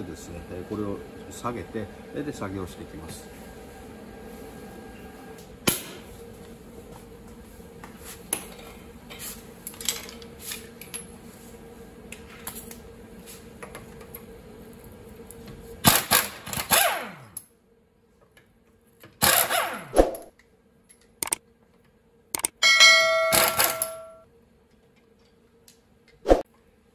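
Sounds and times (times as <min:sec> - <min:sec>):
impact wrench hammering: 0:22.4 - 0:24.2.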